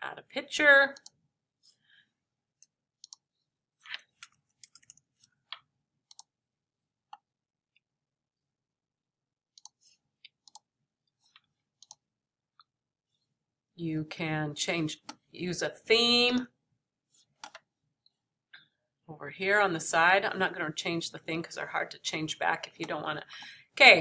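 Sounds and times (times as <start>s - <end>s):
computer mouse clicks: 2.6s - 3.2s, 3.9s - 6.3s, 9.6s - 10.7s, 11.4s - 12.0s.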